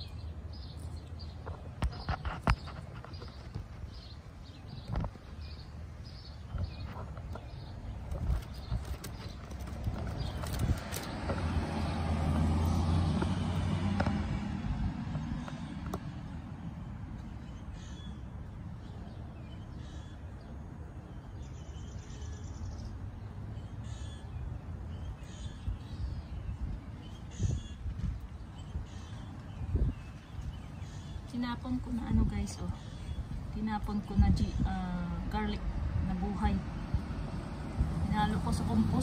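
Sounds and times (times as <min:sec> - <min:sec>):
vehicle passing by: 0:08.9 - 0:17.3, 0:35.2 - 0:39.0.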